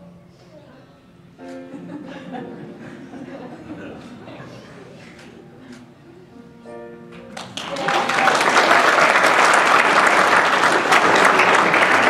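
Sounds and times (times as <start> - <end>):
people clapping and applauding: 7.1 - 12.0.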